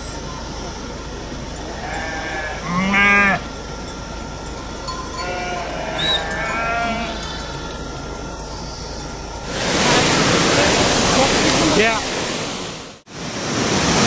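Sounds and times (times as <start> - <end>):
sheep bleating: 1.7 - 3.4, 5.1 - 7.8.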